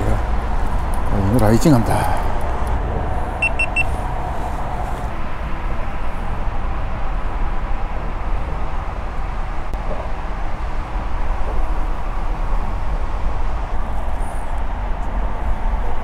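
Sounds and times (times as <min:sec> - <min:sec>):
low rumbling outdoor noise: 0:00.0 - 0:16.0
high electronic beeps: 0:03.4 - 0:03.9.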